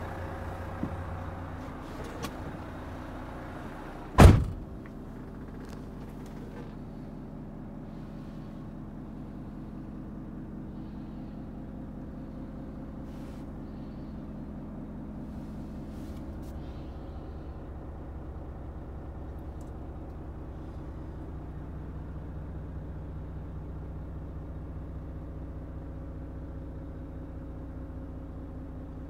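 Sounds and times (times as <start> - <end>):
diesel engine idling: 0.0 - 29.0
loud bang: 4.2 - 4.7.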